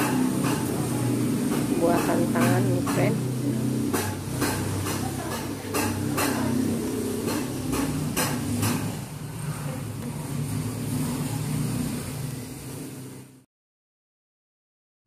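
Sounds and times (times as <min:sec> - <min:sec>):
sharp knocks: 0:01.4 - 0:03.3, 0:03.9 - 0:09.0.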